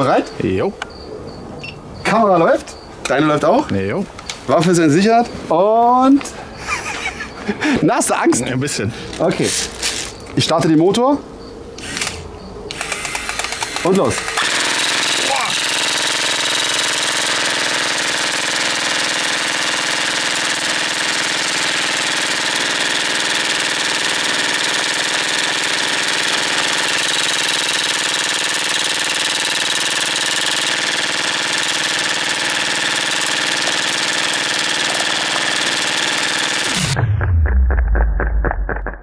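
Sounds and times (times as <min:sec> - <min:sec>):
airsoft rifle firing full auto: 0:11.9 - 0:37.0.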